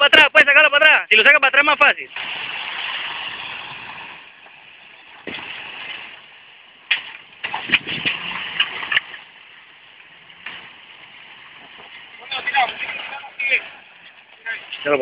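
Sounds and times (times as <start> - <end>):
off-road vehicle engine running: 1.7 - 15.0
sharp cracks and knocks: 2.1 - 9.3, 10.4 - 10.8.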